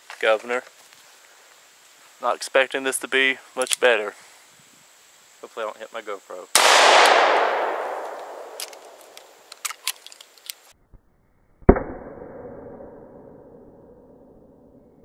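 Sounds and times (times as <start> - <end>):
muffled gunshot with rumble: 6.6 - 9.0
revolver gunshot: 6.6 - 9.5.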